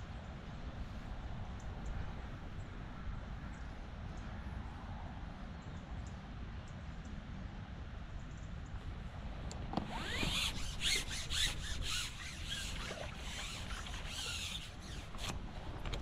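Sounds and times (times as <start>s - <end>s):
fishing pole rubbing and squeaking: 9.7s - 15.4s.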